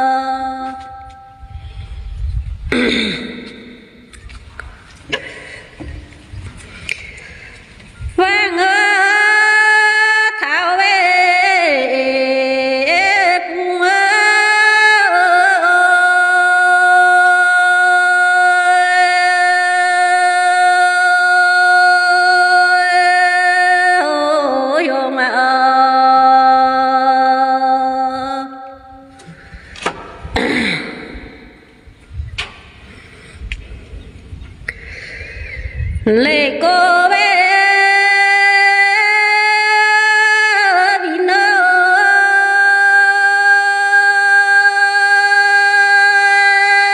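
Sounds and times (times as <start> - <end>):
woman singing unaccompanied: 0.0 - 1.3, 8.1 - 29.1, 36.0 - 46.9.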